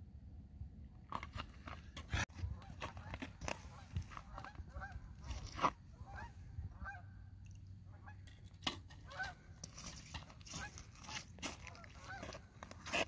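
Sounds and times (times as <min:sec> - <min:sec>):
geese honking: 0:02.5 - 0:05.2, 0:05.9 - 0:07.2, 0:09.0 - 0:09.4, 0:10.5 - 0:12.5.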